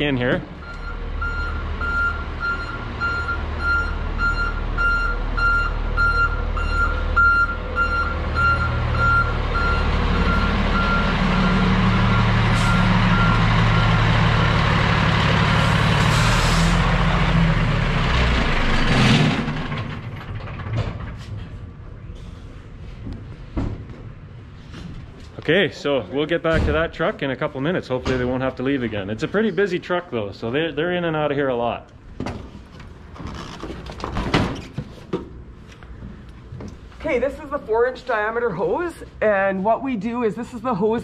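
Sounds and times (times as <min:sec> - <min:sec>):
truck engine running: 0:00.0 - 0:22.0
reversing alarm beeping: 0:00.6 - 0:14.6.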